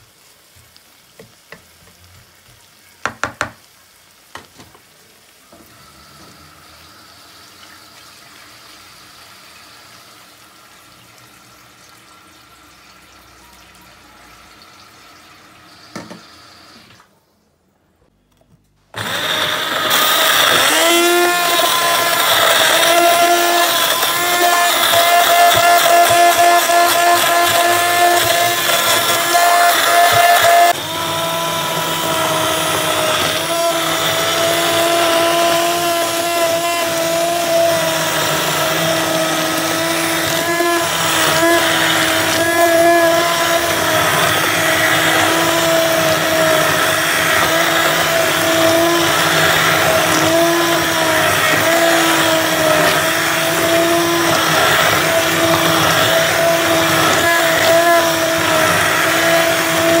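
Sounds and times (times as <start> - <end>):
stick blender motor whine: 18.9 - 60.0.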